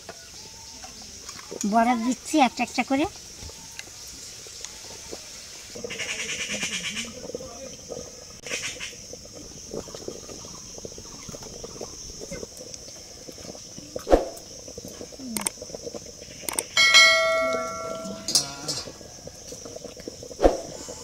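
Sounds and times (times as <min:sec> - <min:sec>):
steel tableware ringing: 0:16.8 - 0:18.9.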